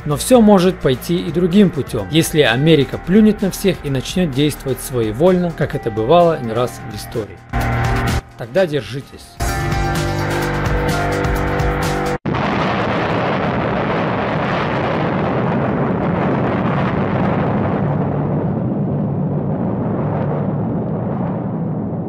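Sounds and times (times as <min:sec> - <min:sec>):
nuclear explosion rumble: 0:00.0 - 0:06.0, 0:12.2 - 0:22.0.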